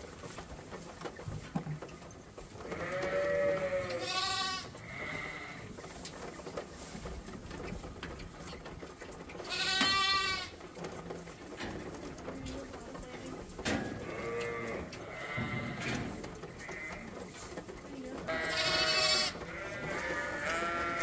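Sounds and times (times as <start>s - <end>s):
sheep bleating: 2.6s - 5.6s, 9.4s - 10.6s, 14.0s - 15.8s, 16.6s - 17.2s, 18.2s - 21.0s.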